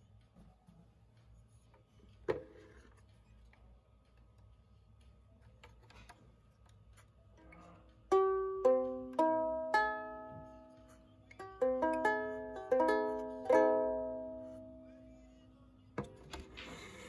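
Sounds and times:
ukulele strings plucked: 0:08.1 - 0:14.9
fumbling at ukulele strings: 0:11.4 - 0:14.8.

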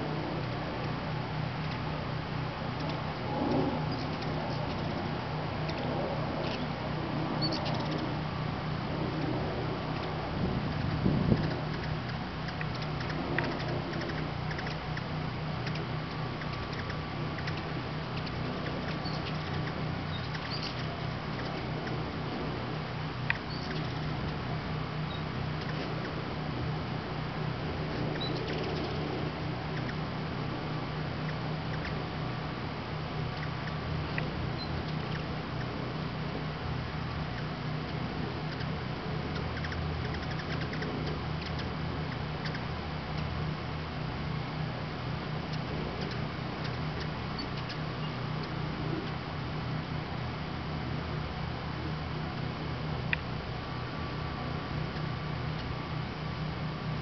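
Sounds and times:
hummingbird chip calls: 0:00.0 - 0:57.0
steady low hum: 0:00.0 - 0:57.0
faint high bird chirps: 0:07.4 - 0:08.1, 0:10.7 - 0:22.0, 0:23.3 - 0:24.4, 0:25.0 - 0:26.2, 0:28.1 - 0:29.0, 0:34.5 - 0:35.7, 0:39.3 - 0:43.3, 0:45.5 - 0:49.2
quick run of ticks: 0:09.9 - 0:22.0, 0:39.3 - 0:43.3.

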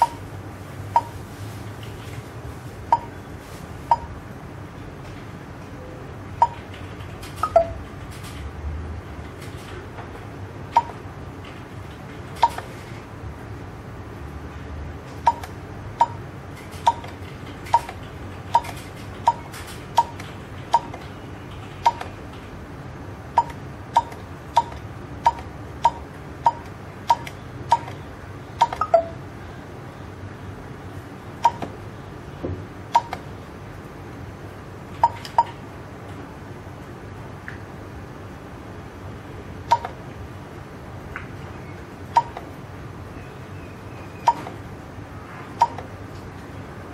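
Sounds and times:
keypad beeps: 0:00.0 - 0:00.2, 0:00.9 - 0:01.2, 0:02.9 - 0:03.2, 0:03.9 - 0:04.2, 0:06.4 - 0:06.8, 0:07.4 - 0:07.8, 0:10.7 - 0:11.0, 0:12.4 - 0:12.7, 0:15.2 - 0:16.2, 0:16.8 - 0:22.2, 0:23.4 - 0:28.0, 0:28.6 - 0:29.2, 0:31.4 - 0:31.8, 0:32.9 - 0:33.2, 0:35.0 - 0:35.6, 0:39.7 - 0:40.0, 0:42.1 - 0:42.4, 0:44.2 - 0:44.6, 0:45.6 - 0:45.9.

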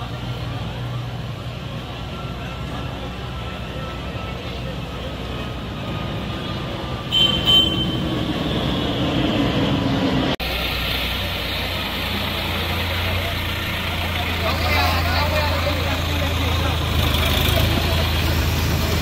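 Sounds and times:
tractor engine humming: 0:00.0 - 0:19.0
outdoor rushing noise: 0:04.7 - 0:19.0
water rushing: 0:10.4 - 0:19.0.

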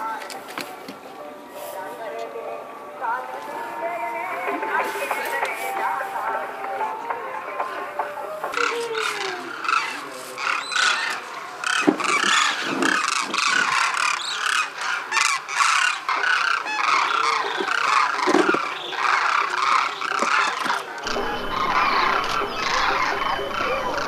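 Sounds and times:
cranes calling in flight: 0:08.5 - 0:24.0.

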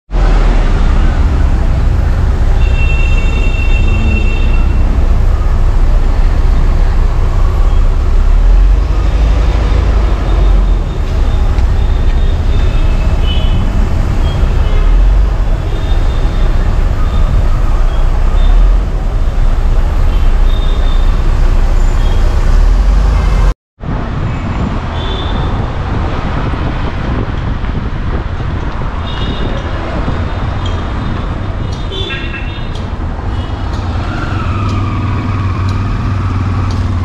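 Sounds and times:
road and engine rumble: 0:00.1 - 0:37.0
car horn toots: 0:02.6 - 0:04.8, 0:31.8 - 0:32.7.

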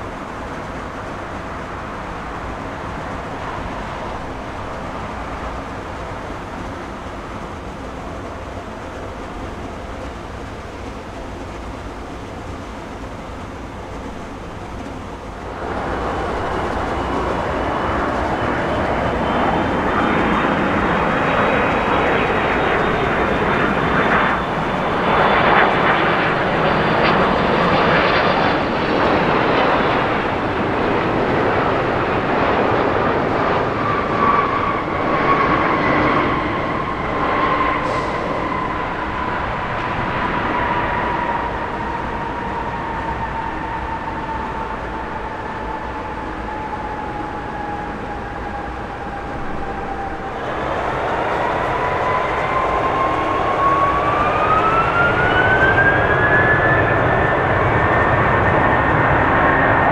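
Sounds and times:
jet engines running steadily: 0:00.0 - 0:59.9
loud jet roaring with high whine: 0:00.0 - 0:59.9.

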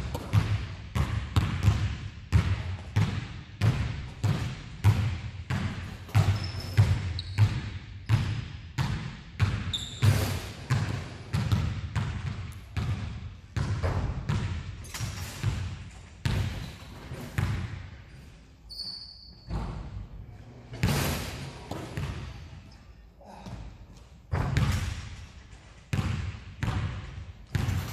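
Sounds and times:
basketballs bouncing on hardwood: 0:00.0 - 0:17.8, 0:21.7 - 0:22.4, 0:24.3 - 0:25.2, 0:25.9 - 0:27.9
short high squeaks: 0:06.3 - 0:07.4, 0:18.7 - 0:19.6.

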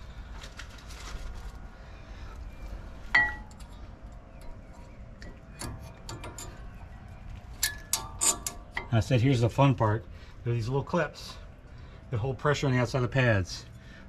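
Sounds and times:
metallic clink with ring: 0:03.2 - 0:04.6.

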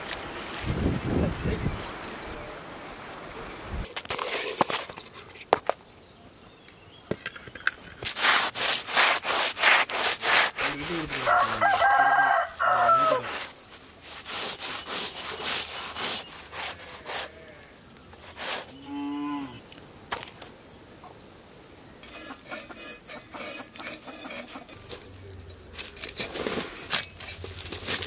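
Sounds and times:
knife scraping fish scales: 0:08.0 - 0:12.4, 0:13.2 - 0:17.3, 0:18.2 - 0:18.8, 0:22.0 - 0:25.0
rooster crowing: 0:11.2 - 0:13.3.

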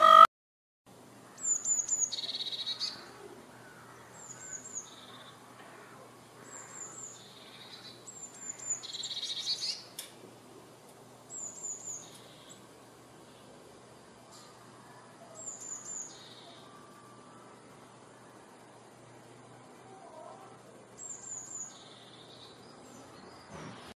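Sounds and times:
bird calling with buzzy churr: 0:00.0 - 0:00.3, 0:01.3 - 0:09.9.

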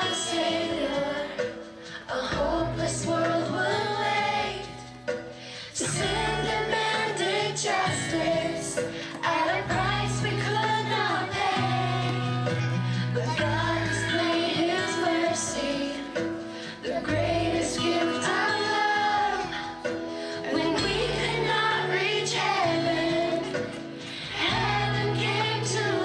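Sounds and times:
instrumental accompaniment: 0:00.0 - 0:26.0
girl singing into microphone: 0:13.2 - 0:19.8.

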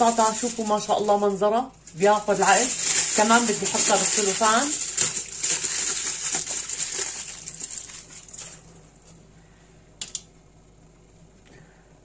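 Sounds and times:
plastic cling film crinkling: 0:00.0 - 0:09.2.

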